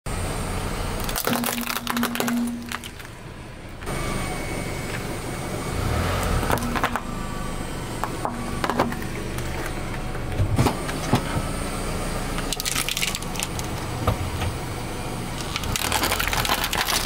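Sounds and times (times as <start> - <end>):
tyre crushing plastic and chalk: 1.0 - 3.2, 6.5 - 7.1, 12.4 - 14.6, 15.4 - 17.0.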